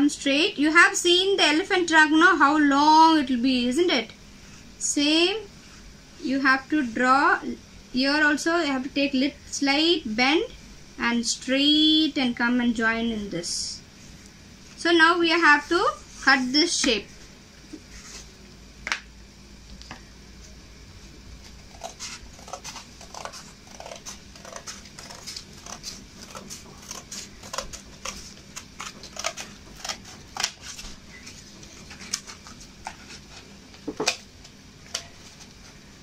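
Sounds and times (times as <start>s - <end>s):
scissors cutting cardboard: 21.6s - 34.2s.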